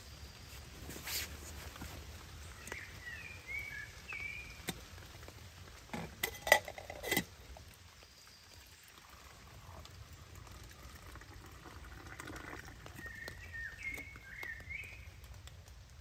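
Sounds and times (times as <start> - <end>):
metal cookware clinking: 6.0 - 7.4
bird chirping: 13.0 - 15.1.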